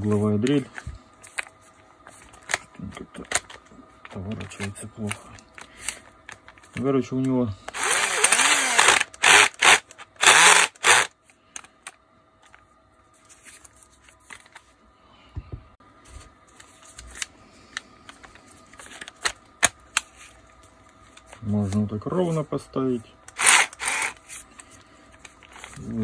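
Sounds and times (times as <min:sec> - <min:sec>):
cordless drill motor bursts: 0:07.7 - 0:11.1, 0:23.3 - 0:24.2.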